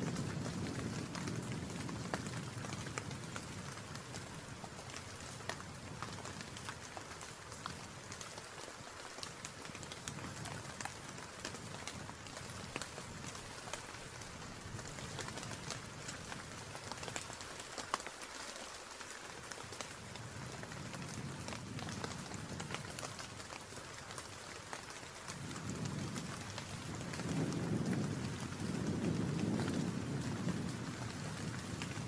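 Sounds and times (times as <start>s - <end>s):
steady rain: 0.0s - 32.0s
low wind rumble: 0.1s - 6.5s, 25.3s - 32.0s.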